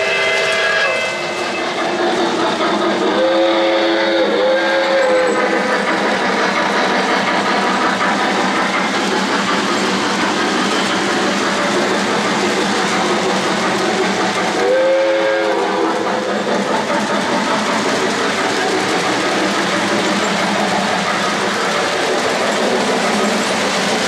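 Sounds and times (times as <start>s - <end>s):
chime steam whistle: 0.0s - 2.0s, 3.1s - 5.5s, 14.6s - 15.9s
model train cars rolling on track: 0.0s - 24.0s.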